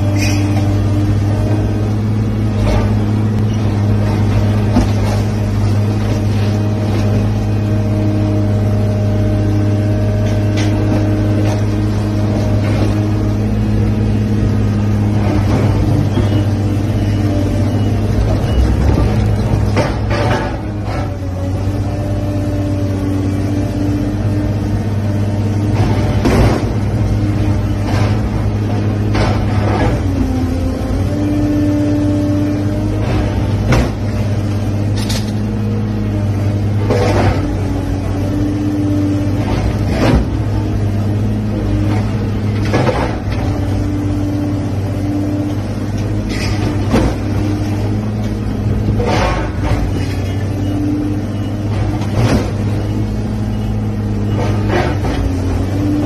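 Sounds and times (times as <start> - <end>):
diesel engine running: 0.0 - 56.0
hydraulics whining: 0.0 - 56.0.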